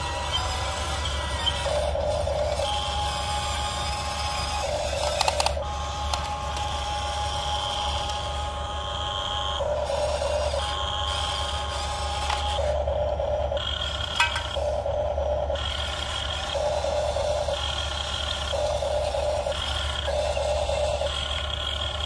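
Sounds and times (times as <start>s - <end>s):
electric motors whining: 0.0s - 22.0s
rattle of clicks: 4.9s - 6.6s.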